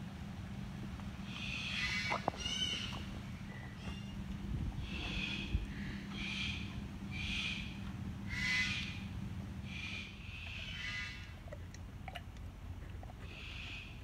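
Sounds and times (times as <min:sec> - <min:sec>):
low steady hum: 0:00.0 - 0:14.0
bird short high calls: 0:04.8 - 0:09.0, 0:09.7 - 0:11.3.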